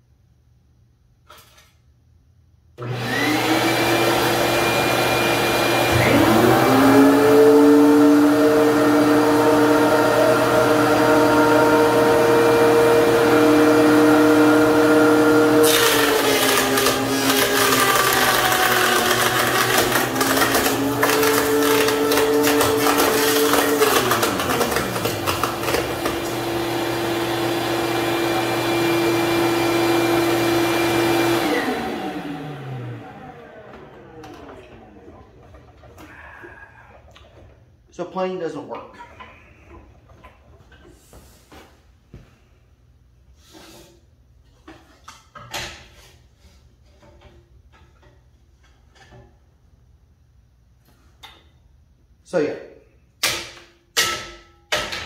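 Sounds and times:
planer clattering: 2.8 - 27.7, 31.4 - 36.0
thickness planer running: 2.8 - 37.4
planer winding down: 2.8 - 37.5.

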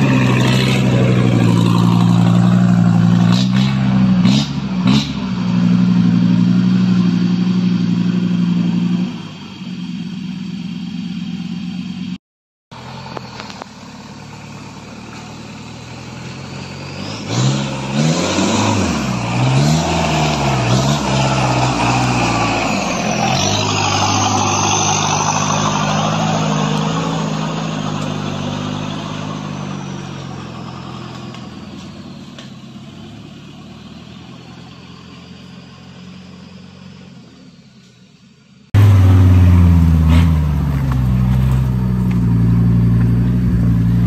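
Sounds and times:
pickup truck engine revving: 12.8 - 31.4, 38.8 - 44.0.

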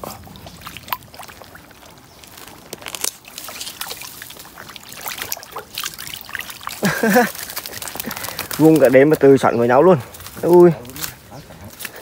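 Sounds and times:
small splashes: 0.0 - 9.0
water sloshing and trickling: 0.0 - 12.0.

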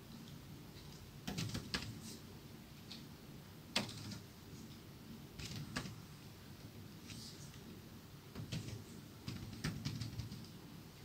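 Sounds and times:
computer keyboard keystrokes: 1.2 - 1.9, 3.8 - 4.3, 8.4 - 10.6.

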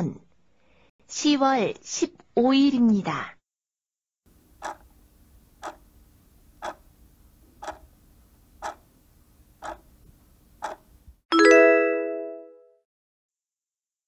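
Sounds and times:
timer ticking: 4.6 - 4.9, 5.6 - 5.8, 6.6 - 6.8, 7.6 - 7.9, 8.6 - 8.8, 9.6 - 9.8, 10.6 - 10.8.

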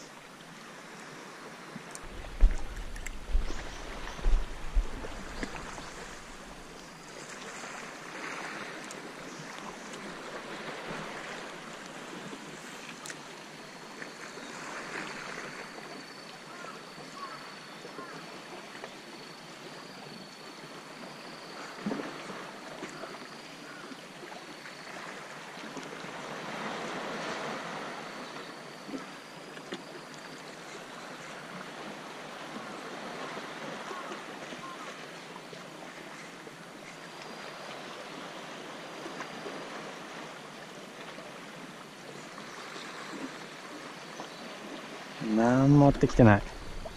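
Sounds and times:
waves washing against rocks: 2.0 - 8.8, 45.3 - 46.9.

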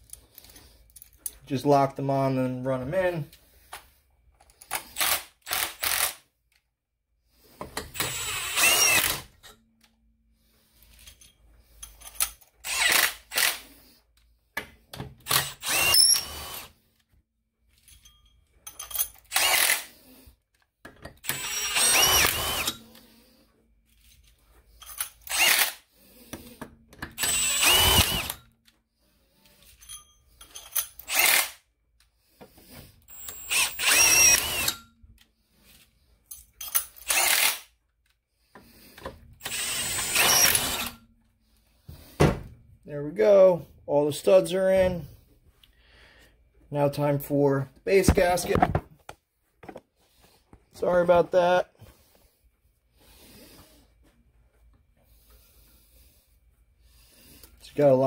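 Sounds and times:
cordless impact tool bursts: 4.7 - 6.2, 7.7 - 9.5, 12.6 - 13.7, 15.2 - 16.8, 19.2 - 20.0, 21.2 - 23.0, 25.2 - 25.9, 27.0 - 28.5, 30.8 - 31.6, 33.1 - 34.9, 36.8 - 37.8, 39.4 - 41.0.

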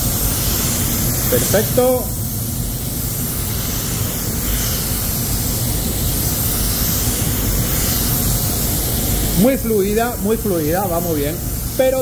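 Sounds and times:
spray gun hissing: 0.0 - 12.0.

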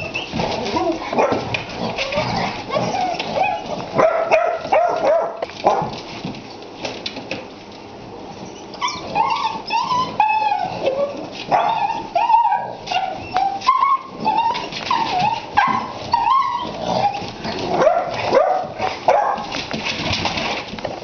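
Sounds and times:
puppies yelping: 0.0 - 5.4, 8.4 - 19.4
puppies yipping and barking: 0.0 - 5.9, 8.3 - 19.5
paws clicking and scuffling: 0.0 - 21.0.

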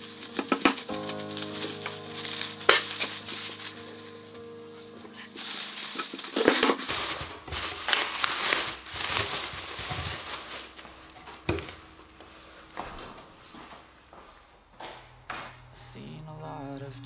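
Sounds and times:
plastic bag crinkling: 0.0 - 12.1.

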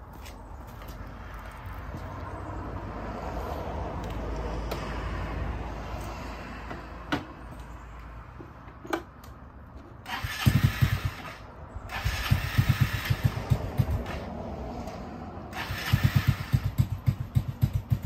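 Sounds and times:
scooter engine cranking and firing: 10.0 - 18.0.

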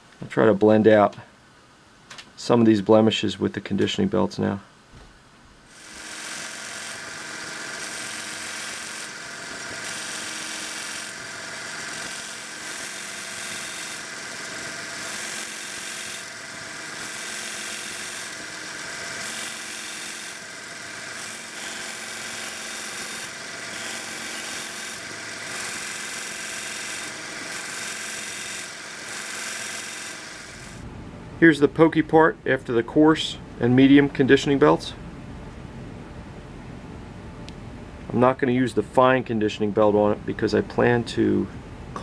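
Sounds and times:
belt grinder motor whine: 5.7 - 30.8
steel grinding on belt: 5.7 - 30.8.

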